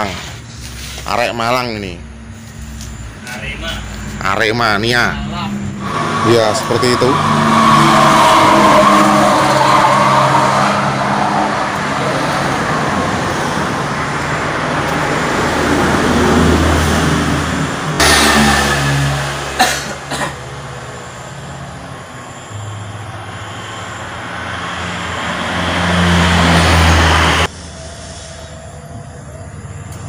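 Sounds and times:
vehicle engine: 0.0 - 30.0
sharp knocks: 17.9 - 20.4.

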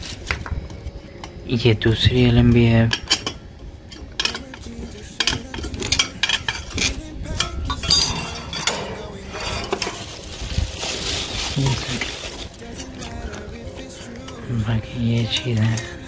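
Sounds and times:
metal clinks and taps: 7.7 - 8.8.

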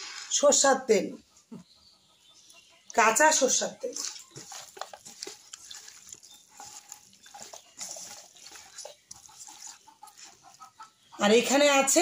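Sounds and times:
hands squelching raw chicken: 2.9 - 11.2.

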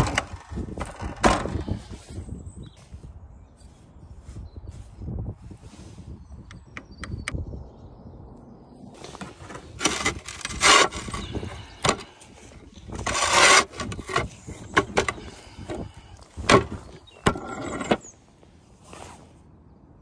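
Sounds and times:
roof tiles scraping and knocking: 0.0 - 1.9, 9.0 - 18.2.

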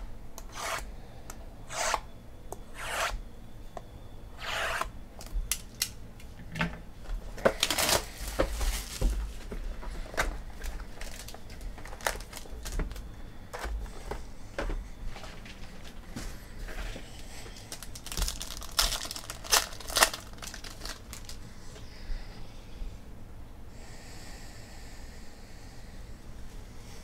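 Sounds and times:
cardboard rustle: 7.6 - 13.0, 17.6 - 21.4.

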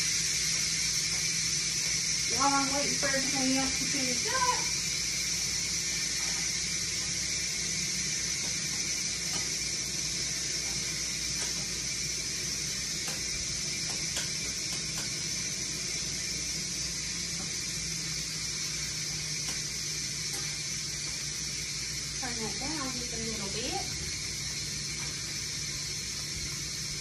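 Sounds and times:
food hissing on stovetop: 0.0 - 27.0
utensil clicking against pot: 10.7 - 11.7, 13.0 - 15.3, 19.3 - 21.2.

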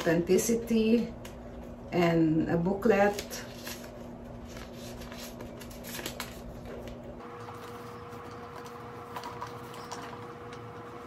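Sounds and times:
paper rustling: 2.9 - 11.0.

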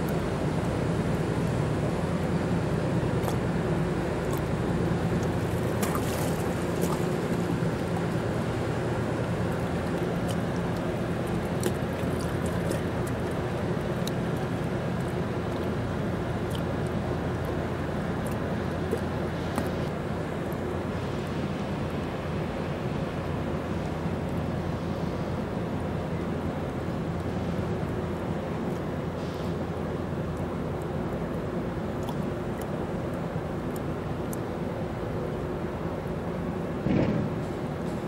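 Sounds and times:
diesel boat engine drone: 0.0 - 38.0
light water splashes: 0.0 - 38.0
wind and water noise: 0.0 - 38.0.

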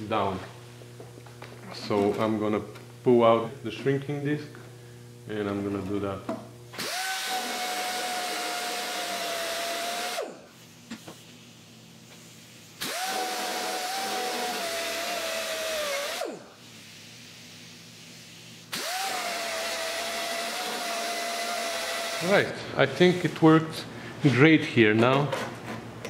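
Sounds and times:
angle grinder whining: 6.7 - 10.5, 12.8 - 16.5, 18.8 - 22.5.

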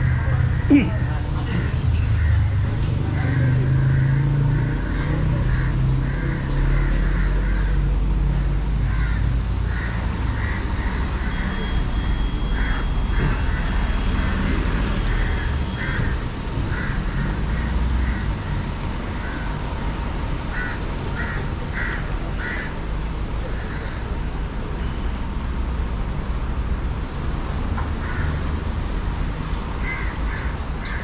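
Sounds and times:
street traffic rumble: 0.0 - 31.0
crows cawing: 2.1 - 11.7, 12.5 - 19.6, 20.5 - 22.9, 23.6 - 24.1, 28.0 - 28.5, 29.8 - 31.0.

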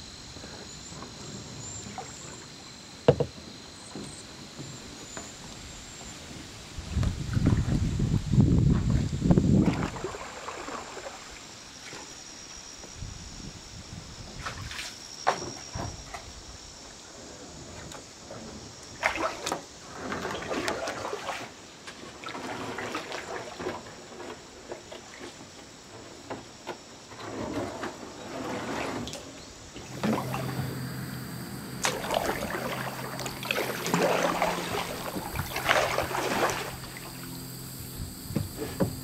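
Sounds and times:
paddle swishing in water: 8.7 - 12.2, 17.6 - 39.0
water trickling and dripping: 29.9 - 37.5.

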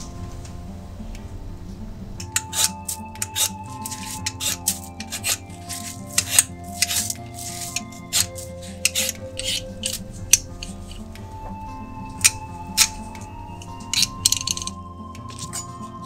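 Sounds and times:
background music: 0.0 - 16.0
peeler scraping potato skin: 2.4 - 10.8.

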